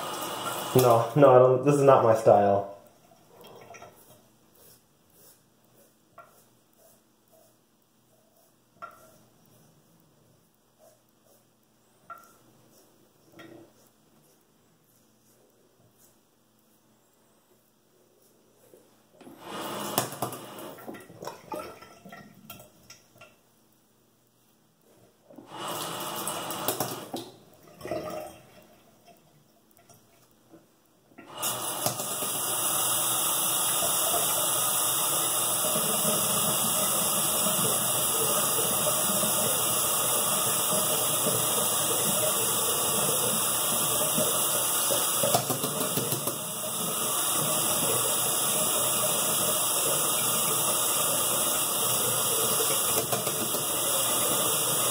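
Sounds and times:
tap water running into basin: 0:00.0 - 0:04.2, 0:19.2 - 0:23.4, 0:25.3 - 0:29.2, 0:31.2 - 0:54.9.

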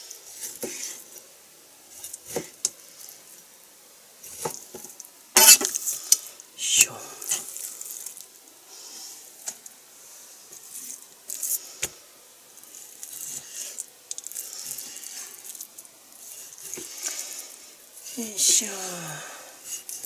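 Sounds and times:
knife slicing raw meat: 0:05.4 - 0:05.8.

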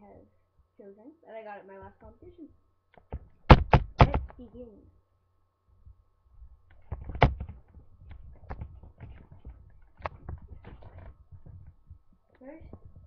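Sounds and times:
knocks and taps: 0:03.0 - 0:04.4
rustling: 0:05.8 - 0:13.0.

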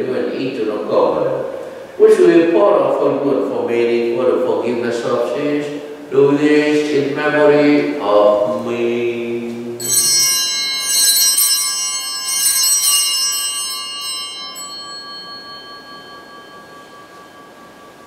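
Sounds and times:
bells ringing: 0:09.8 - 0:18.0.

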